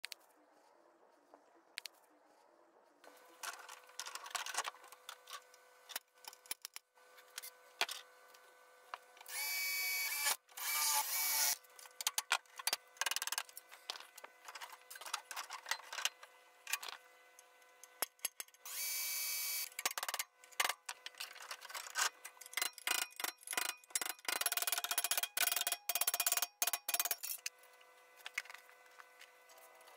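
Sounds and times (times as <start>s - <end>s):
power drill running: 9.3s - 11.6s, 18.6s - 19.8s.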